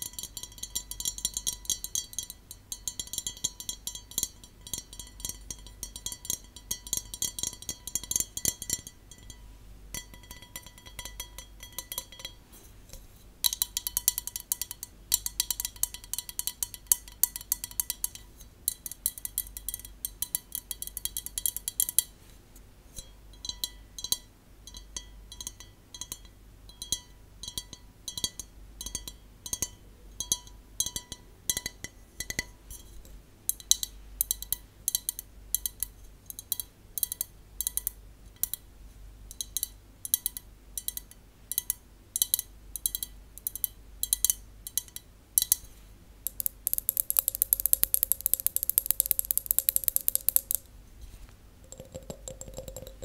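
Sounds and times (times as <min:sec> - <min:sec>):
fingernails tapping a glass: 0:00.0 - 0:09.4, 0:10.0 - 0:12.4, 0:46.3 - 0:50.7, 0:51.7 - 0:53.0.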